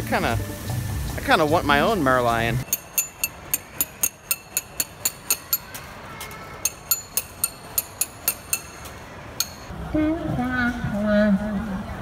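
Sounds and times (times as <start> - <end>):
metal chisel and hammer clinking: 2.6 - 5.8, 6.6 - 9.7.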